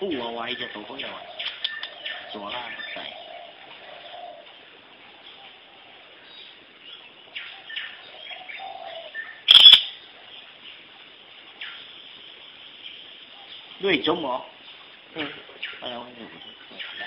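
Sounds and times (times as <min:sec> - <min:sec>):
short bird chirps: 0:09.2 - 0:09.9.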